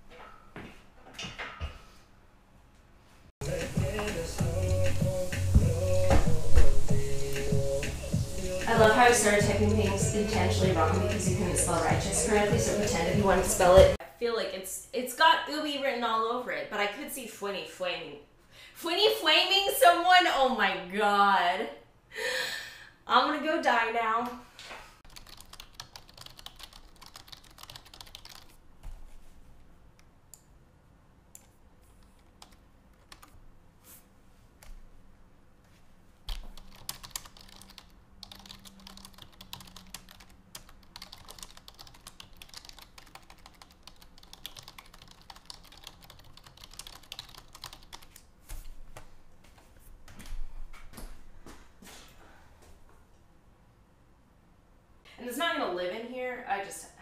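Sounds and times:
typing on computer keyboard: 25.1s - 28.5s, 31.4s - 33.4s, 36.3s - 48.2s.

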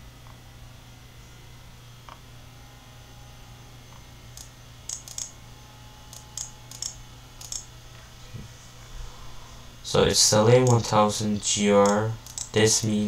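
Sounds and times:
low electrical hum: 0.0s - 13.0s
keyboard and mouse clicking: 4.4s - 5.3s, 6.1s - 7.7s, 10.6s - 10.9s, 11.8s - 12.6s.

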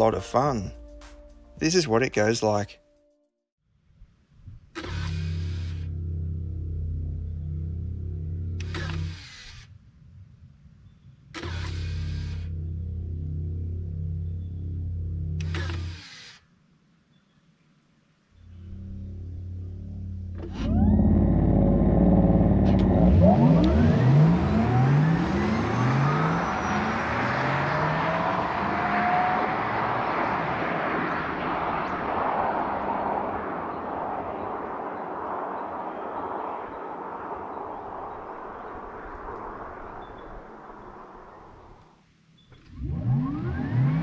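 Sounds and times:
electric motors whining: 4.8s - 9.6s, 11.4s - 16.4s, 18.4s - 29.6s.

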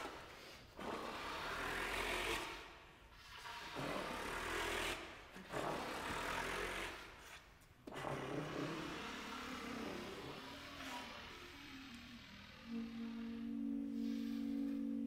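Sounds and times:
breathy saxophone and clarinet: 8.1s - 15.0s
faint low pitched tones: 11.2s - 15.0s.

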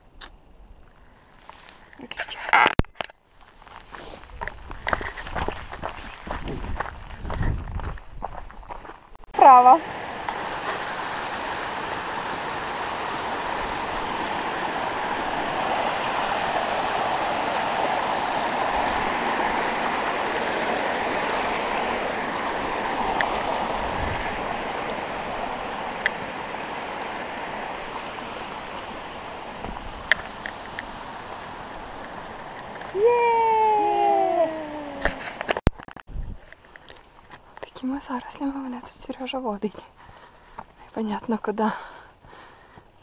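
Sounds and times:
stream rushing over rocks: 9.4s - 35.9s.

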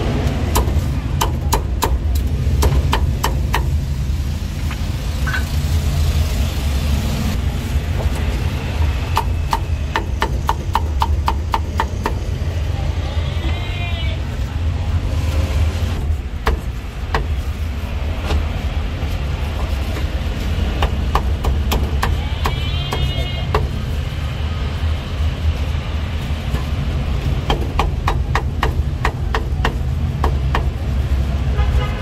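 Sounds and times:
low rumble of street traffic: 0.0s - 32.0s
cleaver chopping on wooden block: 20.8s - 23.8s.

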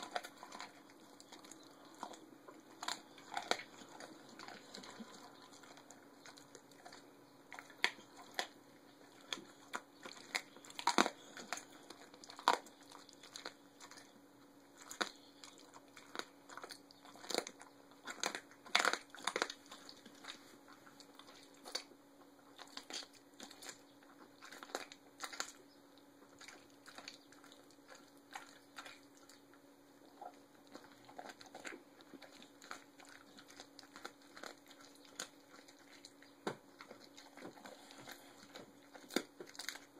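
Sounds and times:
dog chewing and crunching bones: 0.0s - 39.9s.

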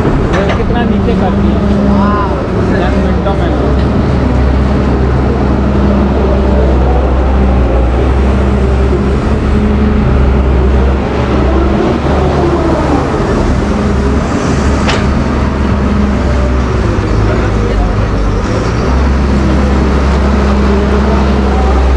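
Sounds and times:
diesel engine running: 0.0s - 21.9s
hydraulic whine: 0.0s - 21.9s.

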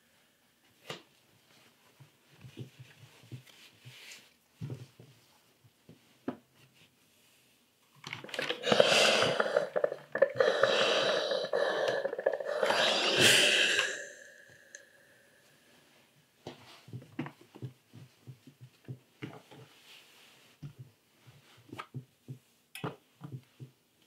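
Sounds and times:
steam iron hissing: 8.4s - 14.9s.

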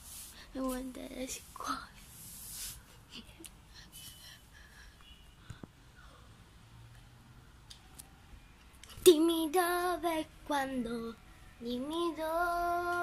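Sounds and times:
girl singing: 0.5s - 2.0s, 8.9s - 13.0s.

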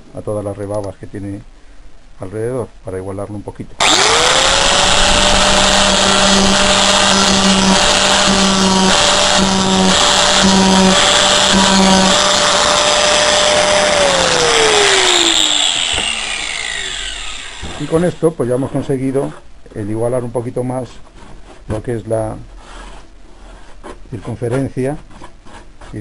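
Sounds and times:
angle grinder whining: 3.8s - 18.2s
grinder disc spinning down: 3.8s - 18.2s.

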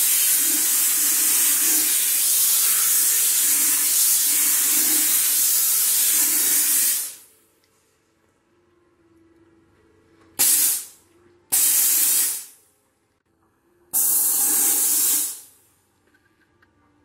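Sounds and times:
steam cleaner hissing bursts: 0.0s - 7.2s, 10.4s - 10.9s, 11.5s - 12.5s, 14.0s - 15.5s.

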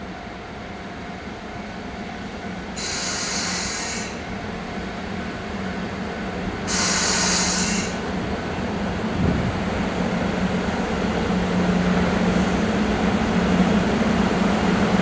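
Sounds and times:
electric locomotive low hum: 0.0s - 15.0s
bursts of hiss: 6.7s - 8.0s.

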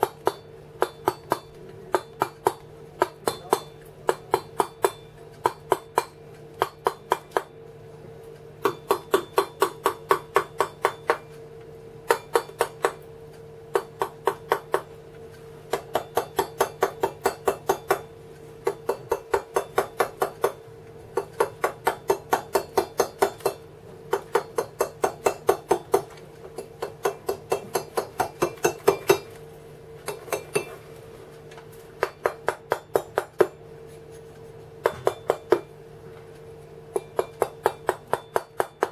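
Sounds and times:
mallet tapping steel chisel on stone: 0.0s - 7.5s, 8.6s - 11.3s, 12.0s - 13.0s, 13.7s - 14.9s, 15.7s - 20.6s, 21.2s - 29.4s, 30.0s - 30.7s, 32.0s - 33.6s, 34.8s - 35.7s, 36.9s - 38.9s
steady hum: 0.0s - 38.9s.

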